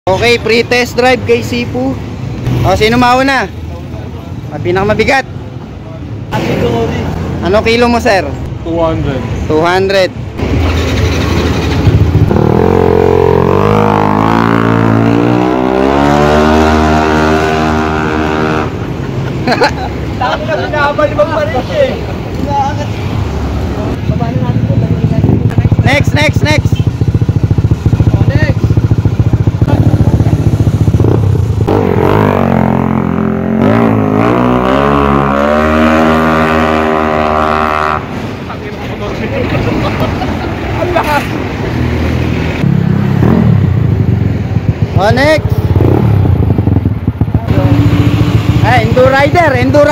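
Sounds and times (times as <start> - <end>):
scooter engine idling and revving: 10.2 - 49.9
scooter engine accelerating: 25.0 - 38.1, 45.6 - 49.9.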